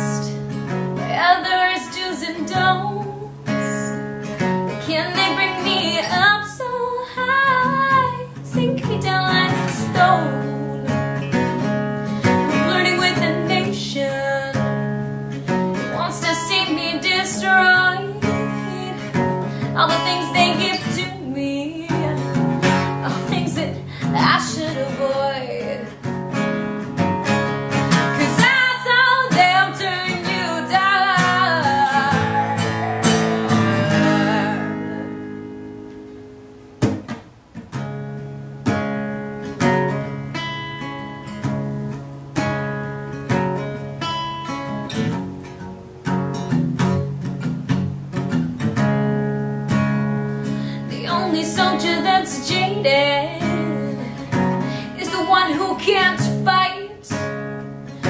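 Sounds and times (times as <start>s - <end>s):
woman singing: 0.0s - 4.1s, 4.7s - 11.3s, 12.2s - 14.8s, 15.8s - 26.0s, 28.0s - 35.6s, 50.8s - 57.3s
acoustic guitar playing: 0.0s - 58.0s.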